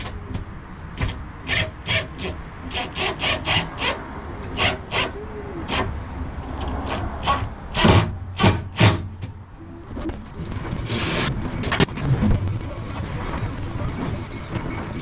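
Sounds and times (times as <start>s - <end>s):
handsaw cutting wood: 1.5s - 4.0s.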